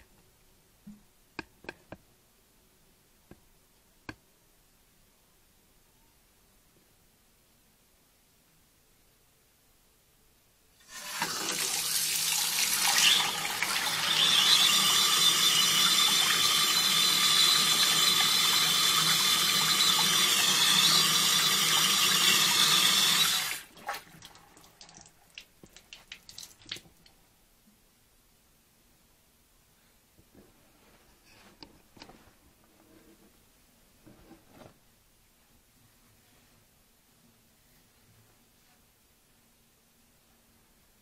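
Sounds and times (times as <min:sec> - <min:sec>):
tap water running into basin: 0:10.8 - 0:26.9
water drips: 0:23.8 - 0:27.2.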